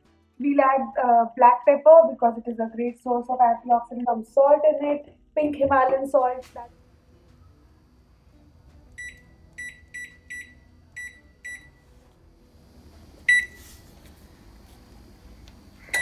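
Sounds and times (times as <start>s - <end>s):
microwave oven humming: 6.6s - 16.0s
microwave keypad beeps: 9.0s - 11.8s, 13.3s - 13.6s.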